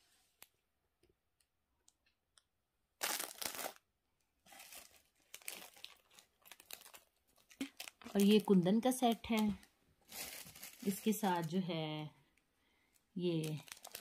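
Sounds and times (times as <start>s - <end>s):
plastic packaging crinkling: 3.0s - 11.9s, 13.2s - 14.0s.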